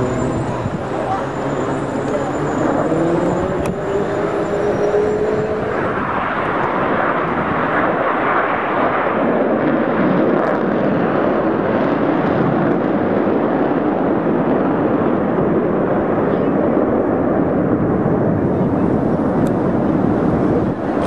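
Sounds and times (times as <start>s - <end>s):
faint rising whine: 0.0s - 6.7s
jet flyby rushing noise: 0.0s - 9.9s.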